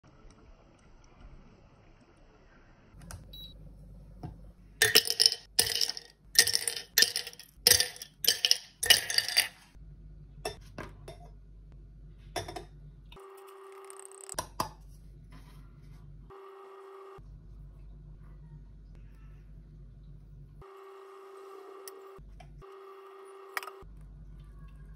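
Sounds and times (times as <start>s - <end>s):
ice cubes clinking into glass: 4.8s - 9.7s.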